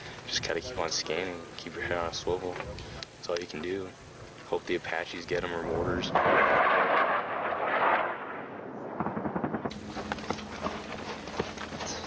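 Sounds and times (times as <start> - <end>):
gunfire cracks: 6.1 - 9.8.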